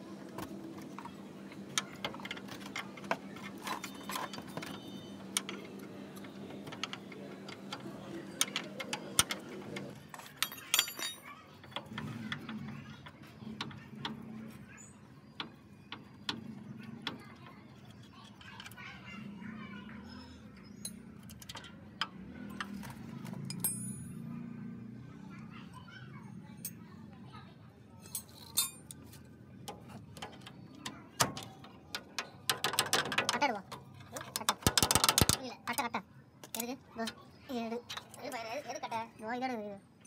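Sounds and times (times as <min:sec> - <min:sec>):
spanners clinking on bolt: 0:06.6 - 0:12.7, 0:23.4 - 0:24.2, 0:28.1 - 0:29.0
ringing metallic clink: 0:23.5 - 0:24.2, 0:28.0 - 0:28.9.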